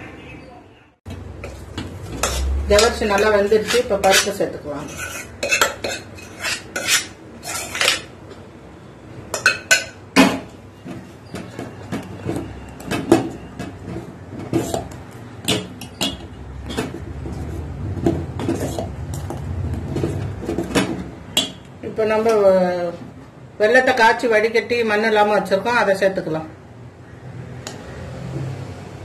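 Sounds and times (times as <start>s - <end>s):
ladle stirring in a pot: 1.1s - 8.1s, 13.6s - 21.6s
metal spoon scraping a pot: 1.4s - 8.1s, 13.4s - 17.6s, 18.3s - 21.6s.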